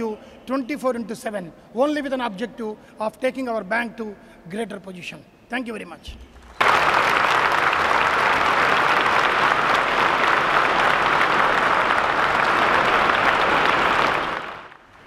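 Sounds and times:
large crowd applauding: 6.6s - 15.0s.

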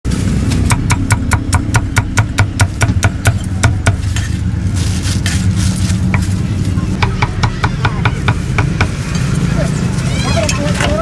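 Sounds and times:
plastic rustle: 0.1s - 0.7s, 4.0s - 7.0s.

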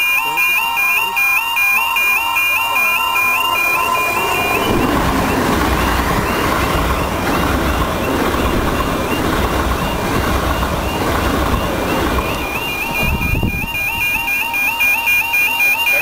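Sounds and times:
train passing at speed: 2.4s - 14.5s
low rumble: 2.6s - 14.1s.

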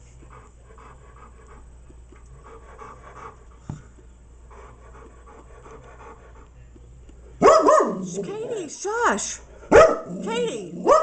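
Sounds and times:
dog panting: 0.0s - 7.4s
steady low hum: 0.0s - 11.0s.

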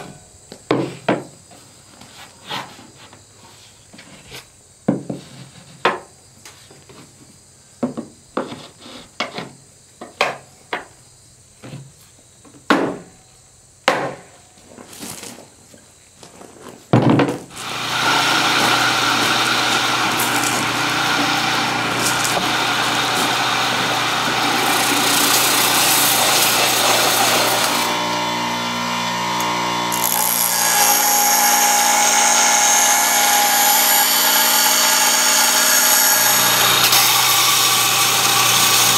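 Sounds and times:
power tool rushing noise: 17.5s - 38.9s
bench grinder grinding steel: 17.6s - 38.9s.

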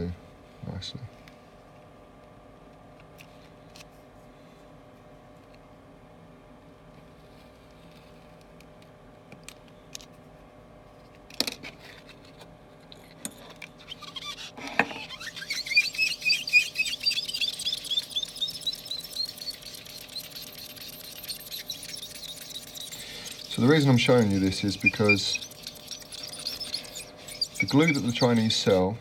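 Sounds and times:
sponge squeaking on glass: 13.7s - 28.9s.

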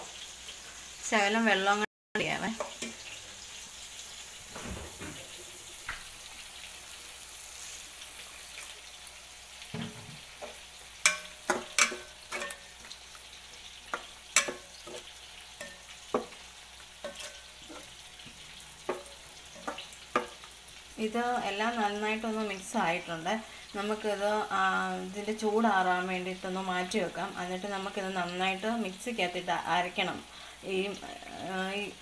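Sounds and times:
masala sizzling in a pot: 0.0s - 32.0s
spoon clacking against pot: 10.4s - 12.7s, 13.8s - 16.4s, 17.0s - 17.9s, 18.8s - 20.5s.

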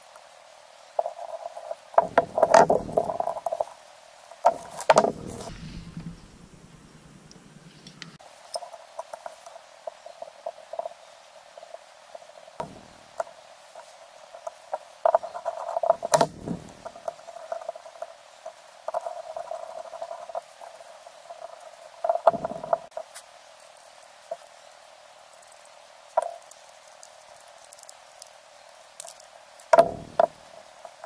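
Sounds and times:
small metal parts clicking: 25.2s - 31.0s.

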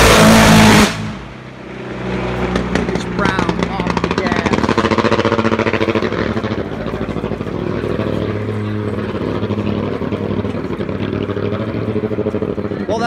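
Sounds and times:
motorcycle engine idling: 2.7s - 13.0s.

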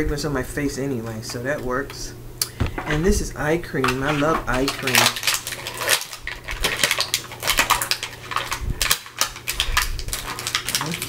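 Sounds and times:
hands handling small package: 3.8s - 11.0s.

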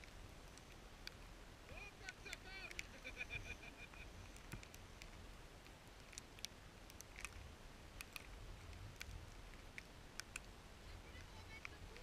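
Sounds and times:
small sharp clicks: 2.0s - 3.1s, 3.8s - 12.0s.

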